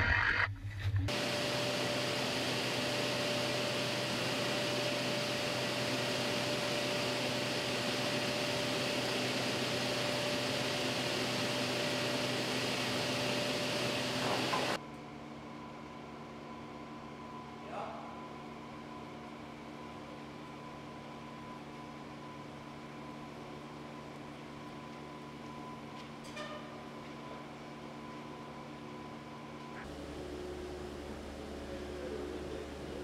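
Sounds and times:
sawmill machinery humming: 1.1 - 14.8, 27.0 - 33.0.

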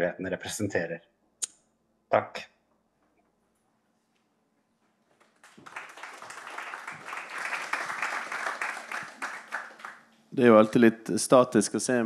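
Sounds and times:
audience applauding: 5.1 - 10.6.

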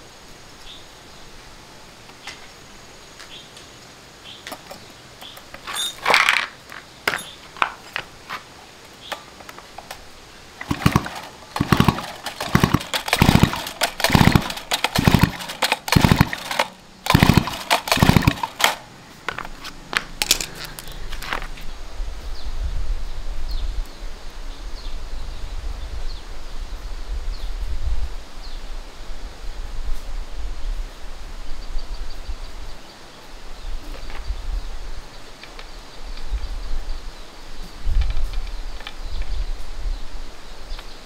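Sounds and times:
chainsaw recoil starter pulls: 10.6 - 18.9
engine cranking: 10.6 - 18.9.

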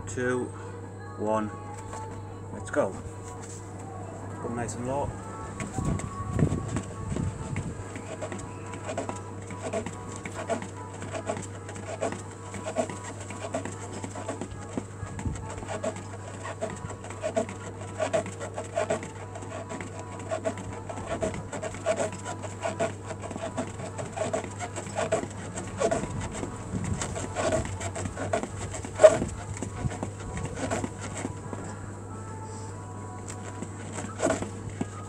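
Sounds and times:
feet tapping on mat: 5.6 - 31.8, 33.2 - 35.0.

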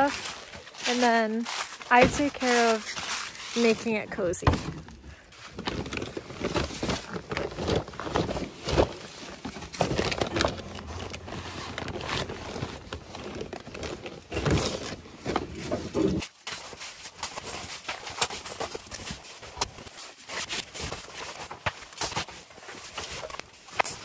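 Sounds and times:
camping gear rustling and knocking: 0.0 - 24.0.

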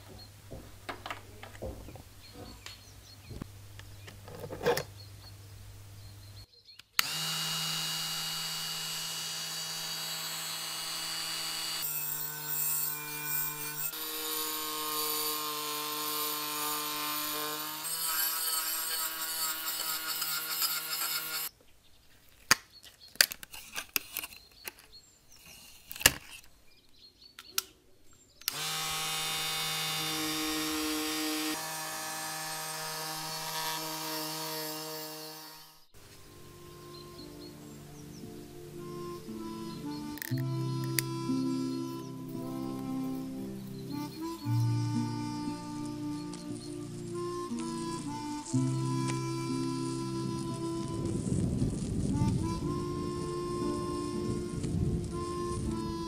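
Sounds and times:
rotary tool wire brush whine: 7.0 - 21.5, 28.5 - 35.9
sharp clicks of tool handling: 40.2 - 41.1.

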